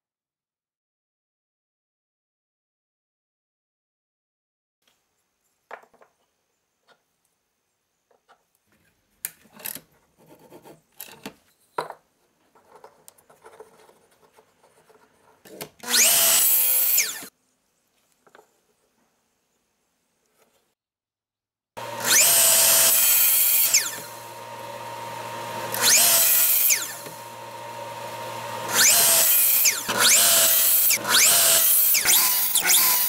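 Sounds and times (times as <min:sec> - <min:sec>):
wooden blocks knocking and sliding: 0:05.7 - 0:06.3
miter saw cutting wood: 0:15.8 - 0:17.3, 0:21.8 - 0:33.0.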